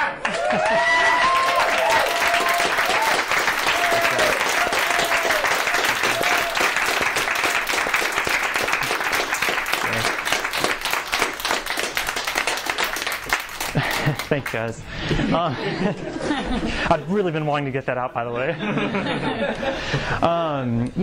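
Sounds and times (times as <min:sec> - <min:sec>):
audience clapping: 0:00.0 - 0:14.8.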